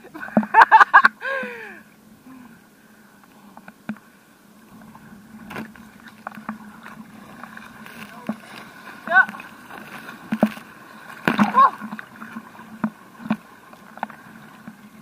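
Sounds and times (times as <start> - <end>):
faint motorboat engine hum: 0.0 - 15.0
waves lapping against camera: 0.0 - 15.0
water splashes: 3.3 - 15.0.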